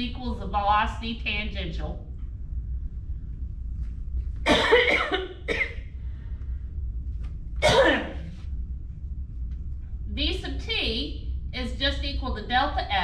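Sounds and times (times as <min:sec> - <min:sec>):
woman coughing: 0:04.5 - 0:05.8, 0:07.6 - 0:08.3.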